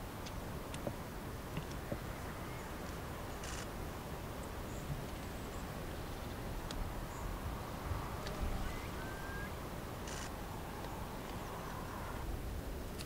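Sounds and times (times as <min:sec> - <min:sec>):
low wind rumble: 0:00.0 - 0:13.0
faint bird chirps: 0:02.0 - 0:03.7, 0:08.0 - 0:10.4.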